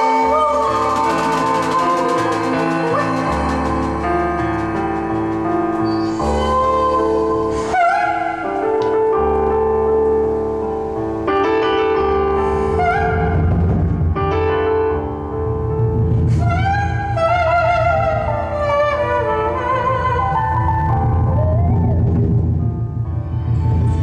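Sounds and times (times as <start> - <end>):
synthesizer sustained chords: 0.0 - 8.4
deep low layer: 20.2 - 24.0.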